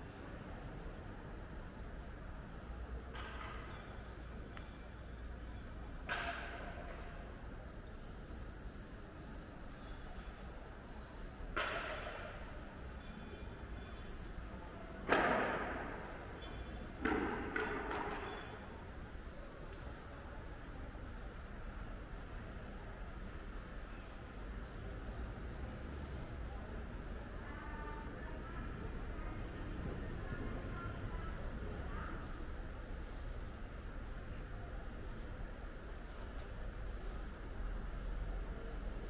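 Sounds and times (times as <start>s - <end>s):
outdoor background noise: 0.0s - 39.0s
small birds chirping: 3.4s - 15.1s.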